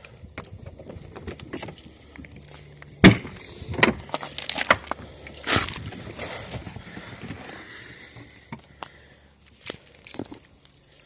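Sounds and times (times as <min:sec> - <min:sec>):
keys jangling: 0:01.4 - 0:02.7, 0:05.0 - 0:06.9, 0:09.5 - 0:11.0.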